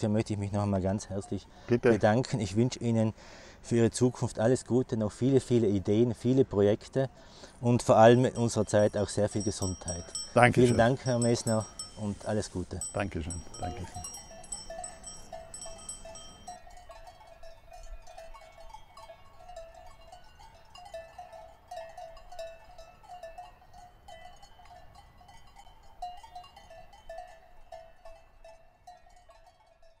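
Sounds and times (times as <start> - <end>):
livestock bells clanking: 7.3 - 30.0.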